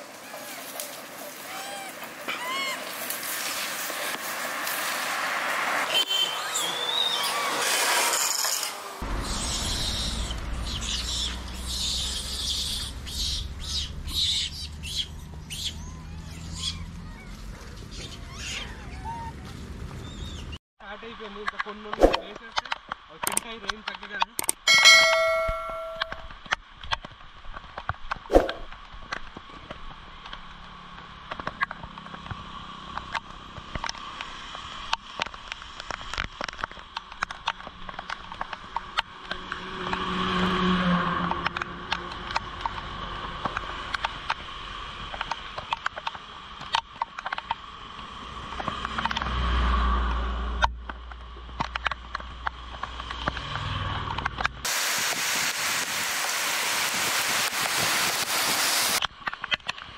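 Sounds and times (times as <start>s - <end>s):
steady rain: 0.0s - 5.9s, 54.6s - 59.1s
traffic on wet road: 0.0s - 15.6s, 29.4s - 59.9s.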